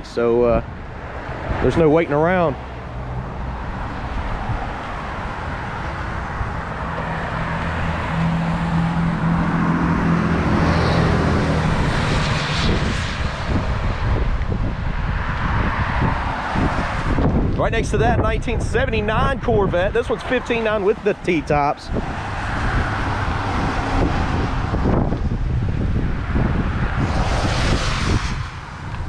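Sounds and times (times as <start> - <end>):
vehicle passing on wet road: 2.6 - 17.5, 21.9 - 29.0.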